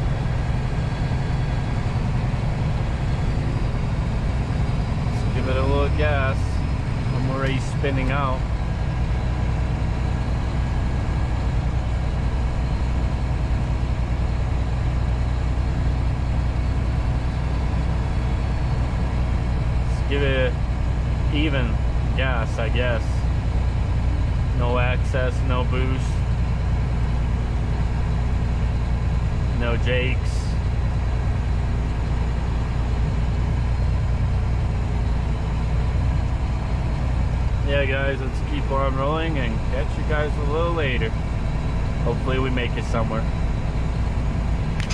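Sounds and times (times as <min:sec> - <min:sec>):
diesel truck engine droning: 0:00.0 - 0:44.9
road noise: 0:00.0 - 0:44.9.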